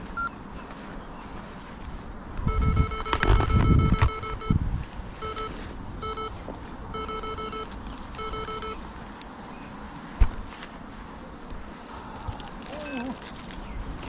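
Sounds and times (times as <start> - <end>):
short electronic beeps: 0.2 - 0.4, 2.5 - 4.6, 5.2 - 8.8
wind rumble on microphone: 1.0 - 7.0, 11.5 - 14.0.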